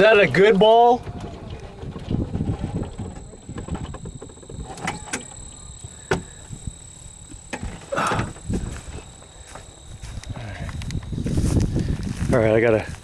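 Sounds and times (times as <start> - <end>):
golf cart rumbling over rough ground: 0.0 - 9.9
faint high whine: 0.0 - 13.0
sharp clicks and rattles: 1.0 - 9.4.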